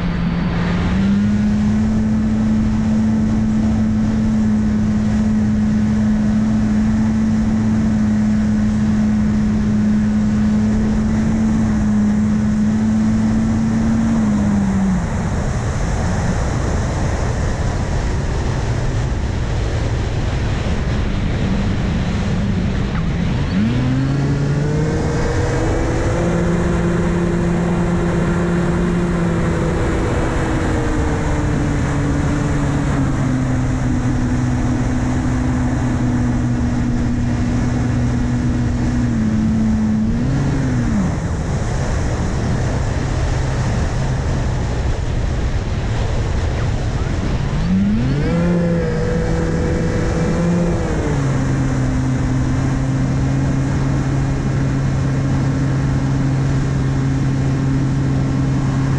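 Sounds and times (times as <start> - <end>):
wind noise: 0.0 - 58.9.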